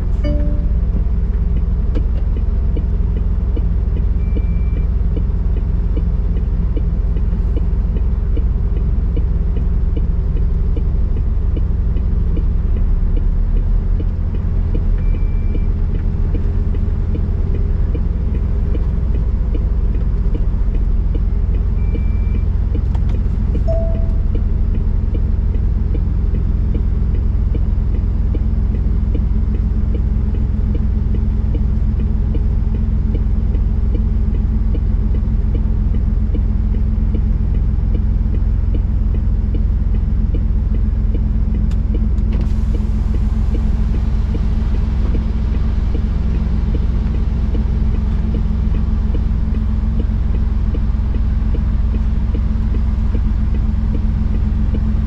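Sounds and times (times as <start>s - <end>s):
diesel truck engine running: 0.0s - 55.0s
short high beeps: 0.2s - 1.0s, 23.7s - 24.5s.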